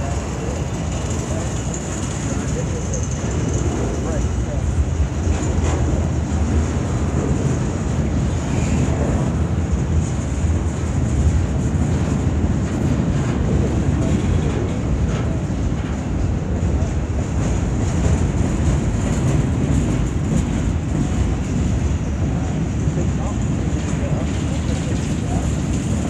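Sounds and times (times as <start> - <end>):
freight train wheels rumbling on rail: 0.0 - 26.0.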